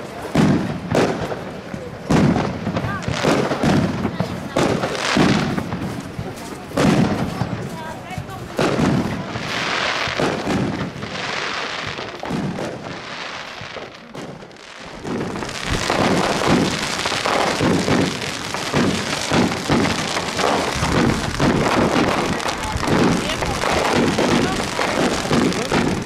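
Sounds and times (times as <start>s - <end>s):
fireworks bangs: 0.0s - 26.0s
fireworks crackling and hissing: 0.0s - 26.0s.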